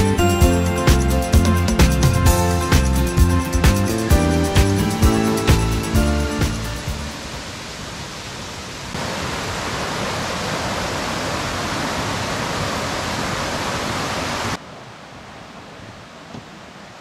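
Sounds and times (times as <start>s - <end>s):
stream rushing over rocks: 6.8s - 17.0s.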